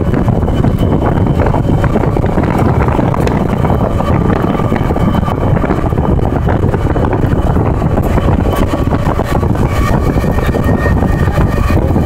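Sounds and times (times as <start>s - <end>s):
vehicle rumble: 0.0s - 12.0s
wind buffeting microphone: 0.0s - 12.0s.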